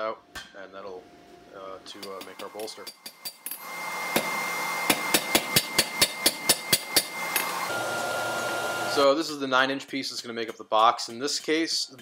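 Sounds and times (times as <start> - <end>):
hammer striking metal on anvil: 4.9 - 7.6.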